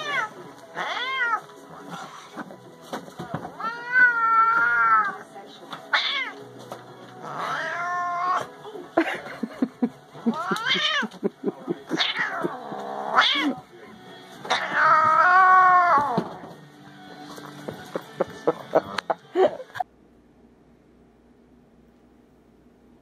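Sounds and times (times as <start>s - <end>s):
cat yowling: 0.0s - 1.4s, 3.6s - 5.2s, 5.9s - 6.4s, 7.2s - 8.5s, 10.3s - 11.1s, 11.9s - 13.6s, 14.5s - 16.2s.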